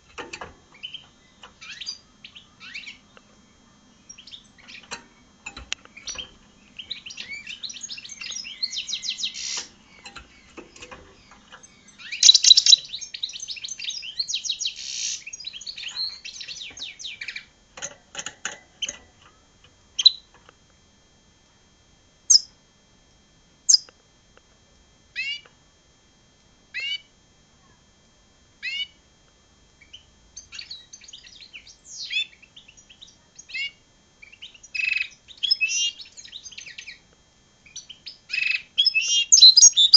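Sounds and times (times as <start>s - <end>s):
finch twittering song: 0.8s - 3.2s, 4.0s - 5.3s, 5.9s - 17.5s, 20.0s - 20.3s, 22.3s - 22.5s, 23.7s - 23.9s, 29.8s - 37.0s, 37.7s - 39.9s.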